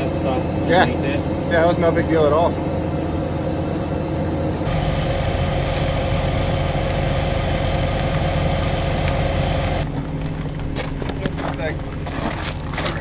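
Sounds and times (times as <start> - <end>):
truck engine idling: 4.6 - 13.0.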